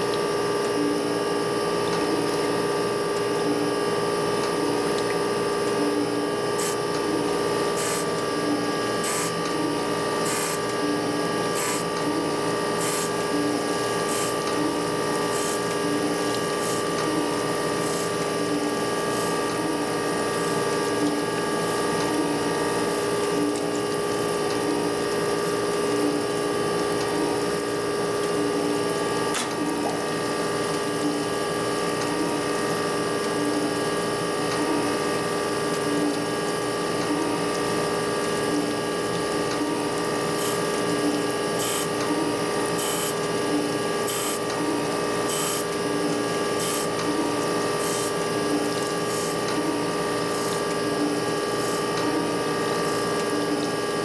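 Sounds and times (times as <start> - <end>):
coolant splashing: 0.0 - 54.0
surface grinder humming: 6.5 - 20.7.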